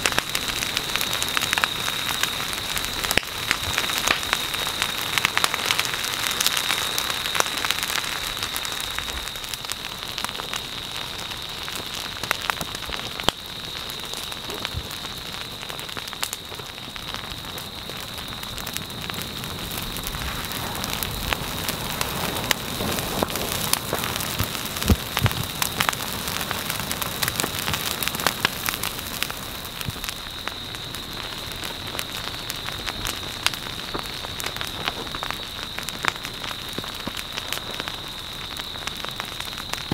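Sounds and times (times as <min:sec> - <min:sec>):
burning vegetation crackling: 0:00.0 - 0:39.9
steady hiss: 0:00.0 - 0:39.9.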